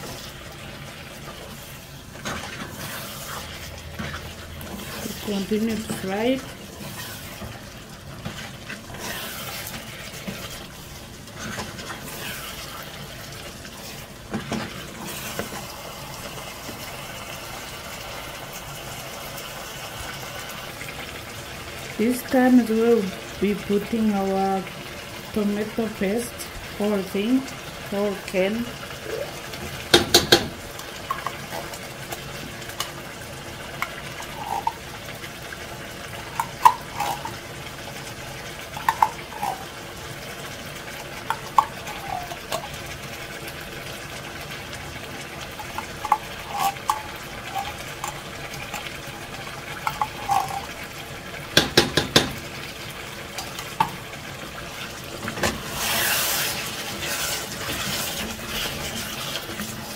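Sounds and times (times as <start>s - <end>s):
food stirring in pot: 0.0s - 19.3s, 27.5s - 59.9s
spoon scraping tin can: 33.8s - 34.8s, 36.2s - 37.4s, 38.8s - 39.7s, 45.6s - 48.9s, 49.8s - 50.8s, 55.6s - 59.8s.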